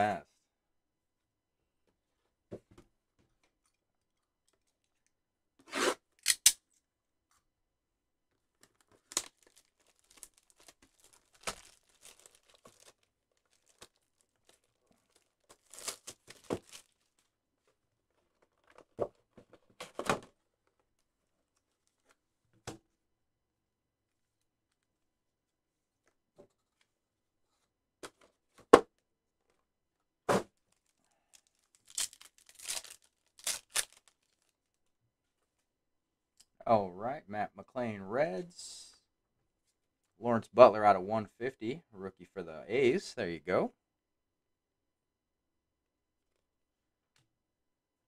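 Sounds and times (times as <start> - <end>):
packaging tearing and crinkling: 9.0 - 17.2, 30.7 - 34.5.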